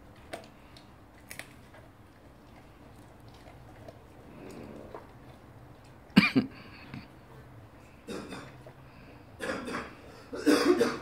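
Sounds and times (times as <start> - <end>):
person coughing: 6.2 - 7.1, 9.4 - 11.0.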